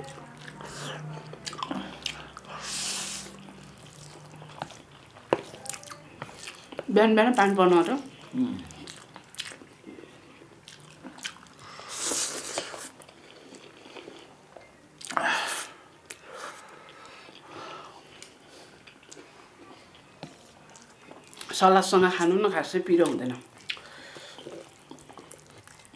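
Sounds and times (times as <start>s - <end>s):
chewing: 0.0s - 15.2s, 16.0s - 22.3s, 23.0s - 25.9s.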